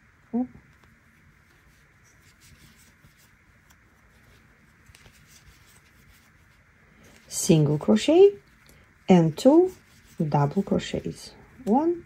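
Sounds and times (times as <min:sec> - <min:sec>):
crochet hook drawing yarn: 0:07.2 - 0:12.0.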